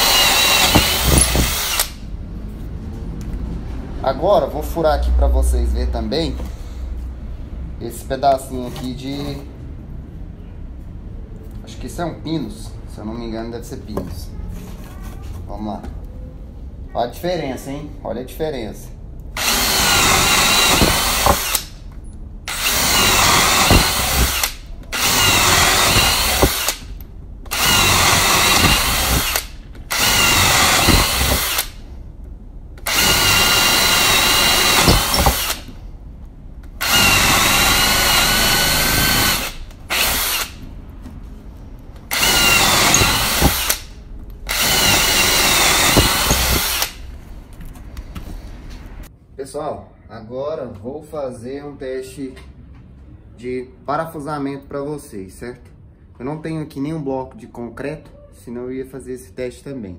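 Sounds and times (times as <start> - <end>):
cordless drill boring into wood: 0.0 - 2.0, 19.4 - 21.7, 22.5 - 26.9, 27.5 - 31.8, 32.8 - 35.7, 36.8 - 40.6, 42.1 - 43.9, 44.5 - 47.0.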